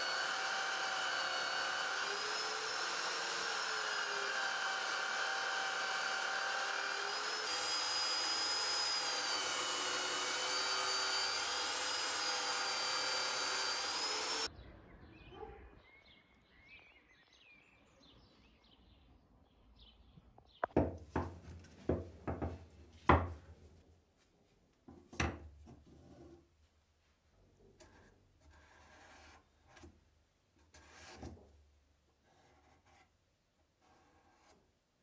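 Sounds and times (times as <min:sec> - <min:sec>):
grinding wheel whine: 0:00.0 - 0:14.5.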